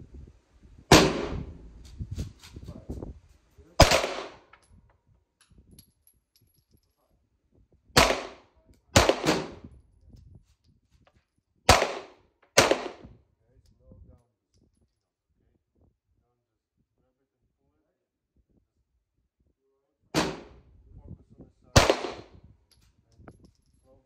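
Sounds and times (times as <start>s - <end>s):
pistol shots echoing: 3.8s - 4.5s, 8.0s - 9.6s, 11.7s - 13.0s, 20.2s - 20.6s, 21.8s - 22.3s.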